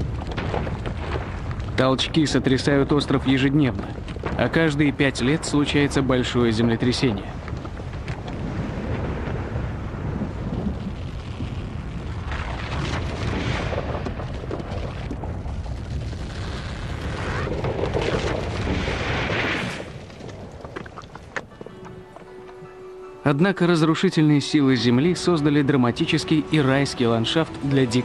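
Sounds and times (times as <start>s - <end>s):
rockfall rumbling and crashing: 0.0s - 22.3s.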